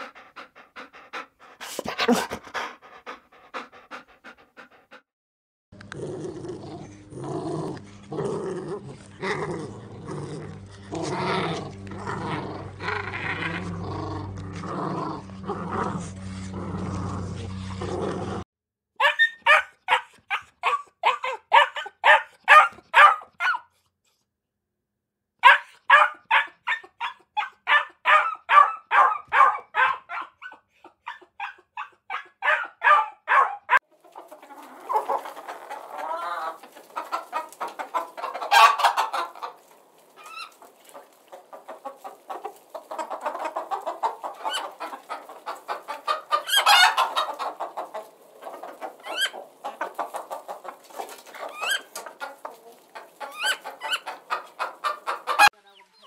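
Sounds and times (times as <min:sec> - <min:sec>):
hens clucking: 0:00.0 - 0:04.8, 0:33.8 - 0:56.0
puppies yapping: 0:19.0 - 0:23.6, 0:25.4 - 0:55.6.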